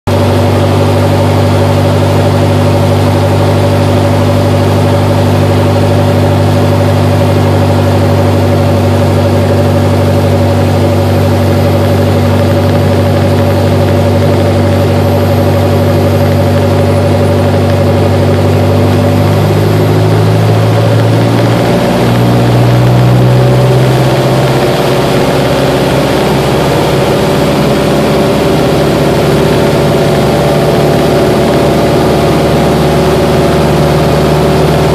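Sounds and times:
light aircraft engine and propeller: 0.1 - 34.9.

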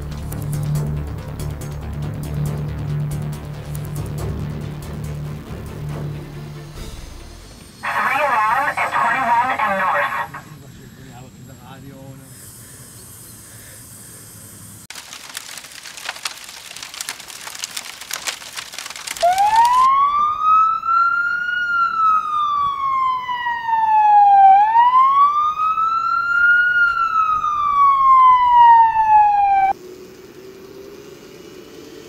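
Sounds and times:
wailing siren: 7.8 - 10.5, 19.2 - 29.8
dense crackle of fast ticks: 14.9 - 19.9.

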